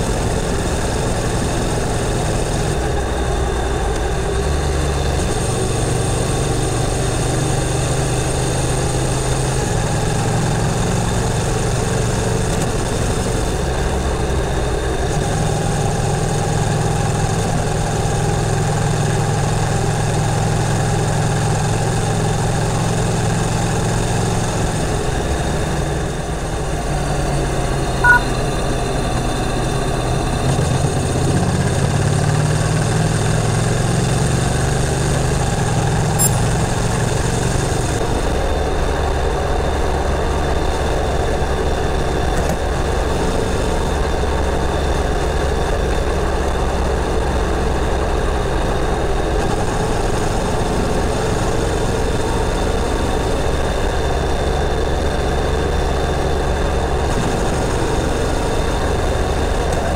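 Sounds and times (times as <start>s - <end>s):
brief click: 28.0s - 28.3s, 36.2s - 36.6s.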